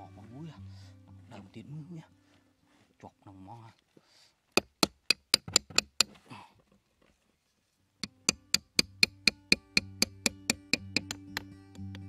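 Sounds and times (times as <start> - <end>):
background music: 0.0 - 2.2, 8.0 - 12.0
hammer tapping on cardboard box: 4.6 - 6.1, 8.0 - 11.5.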